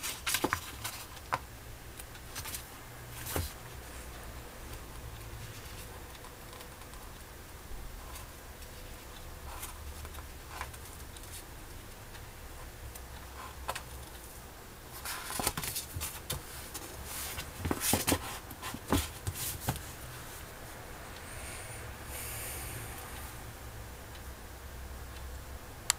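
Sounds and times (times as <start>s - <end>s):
book pages rustling: 0.0s - 1.4s, 2.3s - 3.6s, 14.9s - 20.4s.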